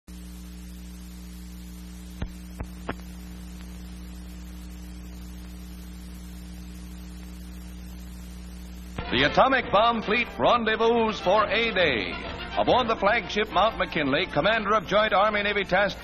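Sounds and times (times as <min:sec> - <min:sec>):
electrical hum and hiss: 0:00.1 - 0:16.0.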